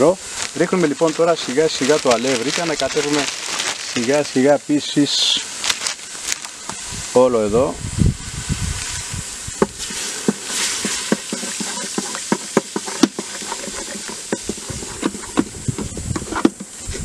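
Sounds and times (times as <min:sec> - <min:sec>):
water sizzling faintly: 0:00.0 - 0:17.0
wooden stick tapping metal pot: 0:09.6 - 0:16.7.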